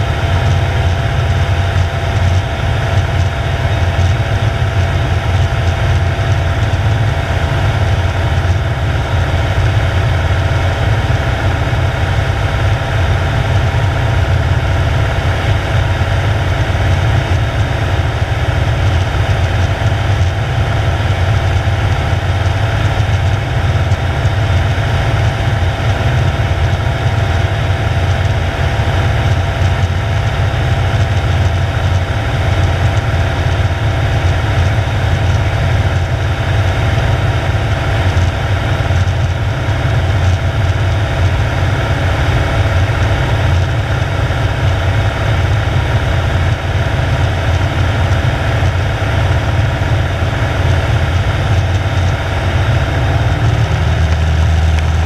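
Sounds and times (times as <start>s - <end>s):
aircraft engine and propeller droning: 0.0s - 55.0s.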